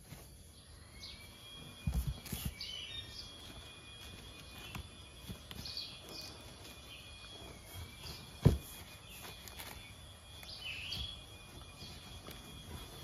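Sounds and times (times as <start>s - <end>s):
birds chirping faintly: 0.0s - 13.0s
thin steady high tone: 0.0s - 13.0s
hands rustling stuffing in box: 1.7s - 13.0s
knock against cardboard box: 8.4s - 8.9s.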